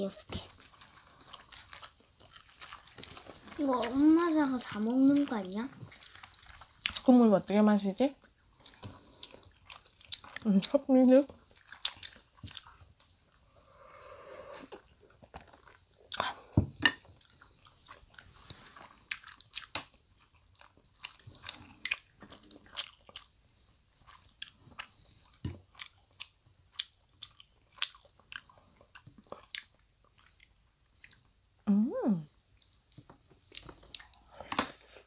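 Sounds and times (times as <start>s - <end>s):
close chewing and biting: 0.2s - 7.1s, 8.1s - 13.4s, 14.7s - 31.4s, 32.3s - 35.0s.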